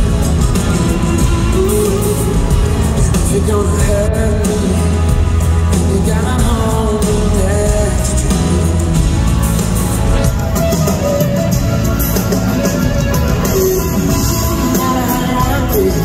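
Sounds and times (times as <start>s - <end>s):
live pop rock band: 0.0s - 16.0s
man singing lead vocal: 0.6s - 9.5s, 13.4s - 16.0s.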